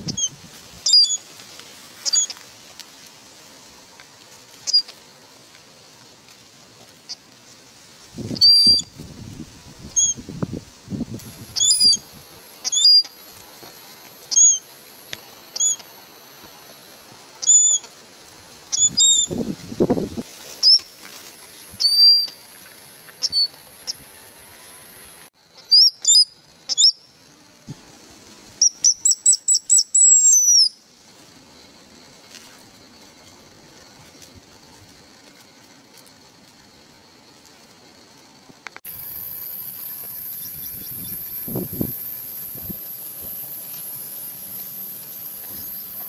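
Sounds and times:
eagle shrill whistled cries: 0:00.1 - 0:01.2, 0:02.0 - 0:02.3, 0:08.4 - 0:08.9, 0:11.5 - 0:13.2, 0:14.3 - 0:14.6, 0:15.6 - 0:15.8, 0:17.4 - 0:17.9, 0:18.7 - 0:19.4, 0:20.6 - 0:20.9, 0:21.8 - 0:22.4, 0:23.2 - 0:23.6, 0:25.6 - 0:27.1, 0:28.6 - 0:30.8.

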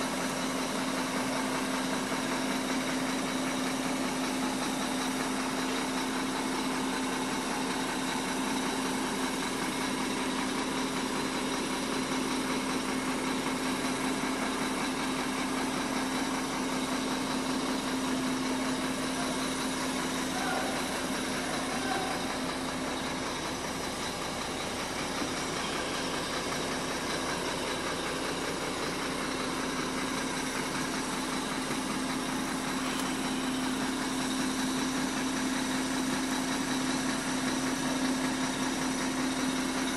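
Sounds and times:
diesel truck engine idling: 0:00.0 - 0:39.9.

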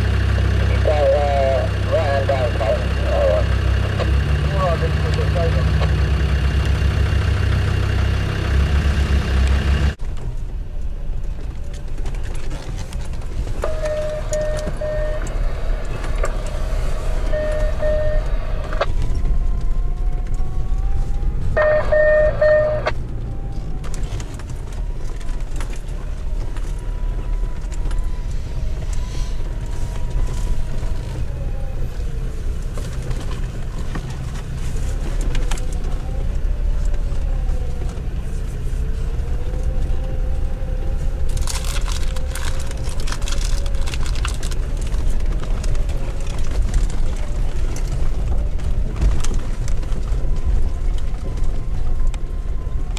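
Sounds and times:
diesel engine pulling uphill: 0:00.0 - 0:52.9
faint steady tones: 0:13.3 - 0:23.7
tyres on rough gravel: 0:41.1 - 0:52.0.

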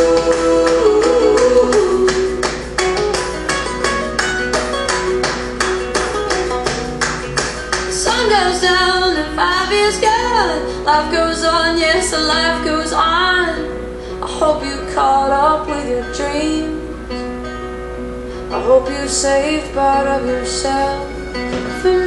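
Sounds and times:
wordless sliding vocal: 0:00.0 - 0:02.8
strummed acoustic guitar: 0:00.0 - 0:22.0.

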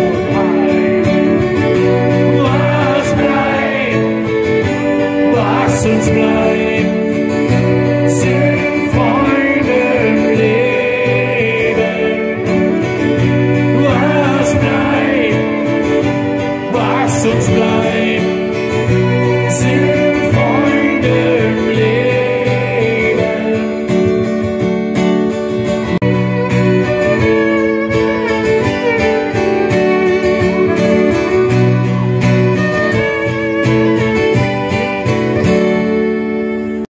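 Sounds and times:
man singing: 0:00.0 - 0:24.4
acoustic guitar: 0:00.0 - 0:36.9
violin: 0:00.0 - 0:36.9.

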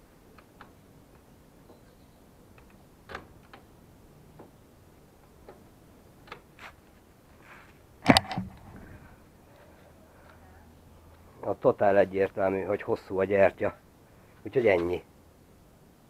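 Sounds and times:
camera handling clatter: 0:08.0 - 0:08.7.

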